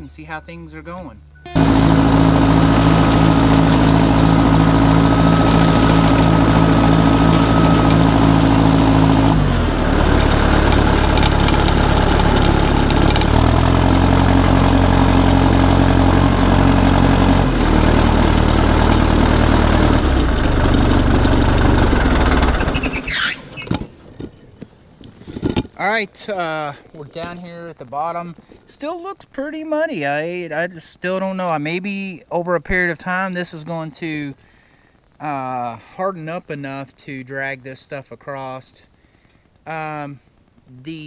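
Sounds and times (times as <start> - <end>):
bulldozer engine running: 0.0 - 26.0.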